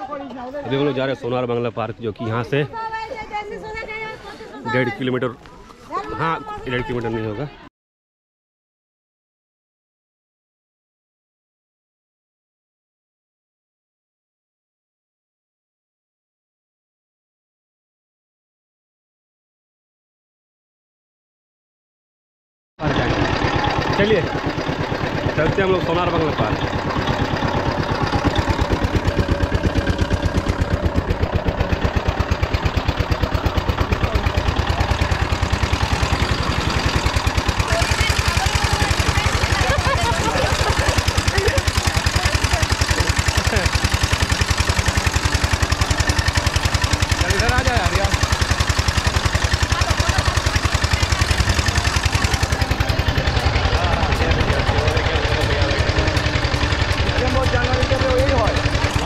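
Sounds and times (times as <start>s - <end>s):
vehicle engine running: 22.8s - 59.0s
faint voices: 49.2s - 59.0s.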